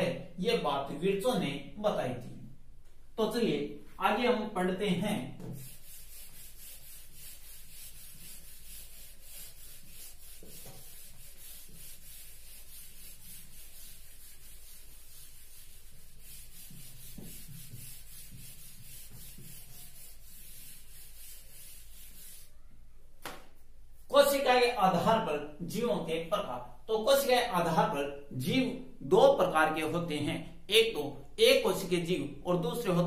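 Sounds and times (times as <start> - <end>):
duster rubbing on whiteboard: 5.4 - 22.5.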